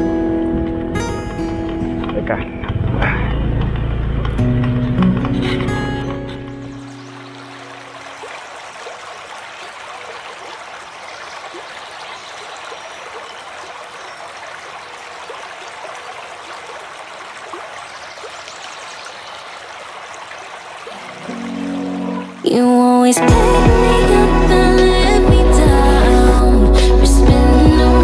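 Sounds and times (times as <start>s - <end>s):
stream water babbling: 2.2s - 28.0s
small trickles and splashes: 5.6s - 22.6s.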